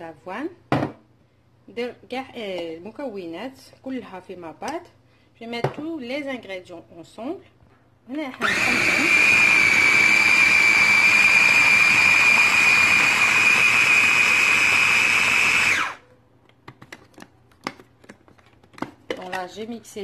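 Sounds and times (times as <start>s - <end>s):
food processor motor whine: 8.4s - 16.0s.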